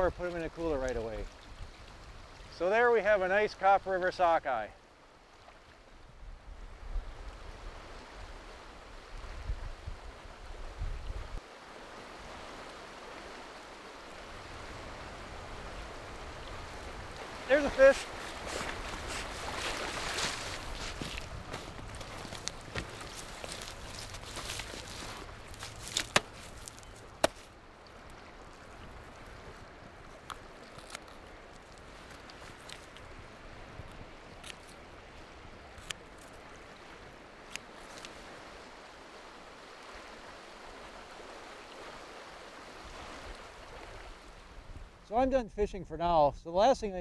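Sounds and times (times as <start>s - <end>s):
wind rumbling on microphone: 5.9s - 11.4s, 14.1s - 27.2s
river current rushing: 11.4s - 35.4s, 36.0s - 44.6s
shears clicking: 25.6s - 27.5s.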